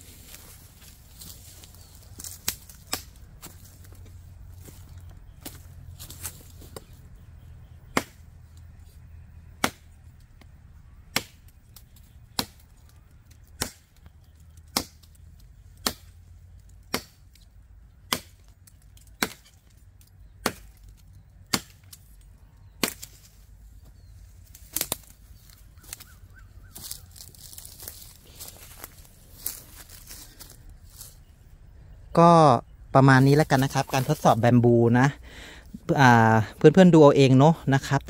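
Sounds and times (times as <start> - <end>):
knife chopping into branch: 2.4 - 3.2, 7.9 - 8.2, 9.6 - 9.9, 11.1 - 12.7, 13.4 - 14.0, 14.6 - 16.2, 16.8 - 17.4, 18.1 - 18.6, 19.2 - 19.7, 20.4 - 20.9, 21.5 - 22.0, 22.7 - 23.3.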